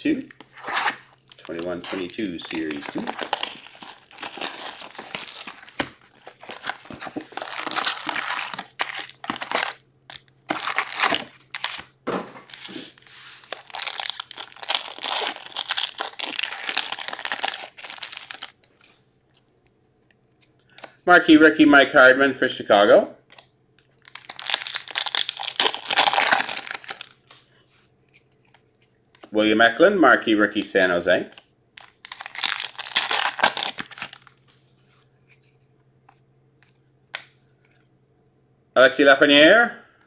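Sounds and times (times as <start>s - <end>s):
plastic foil crinkling and tearing: 0.3s - 18.9s, 24.0s - 27.3s, 31.8s - 34.4s.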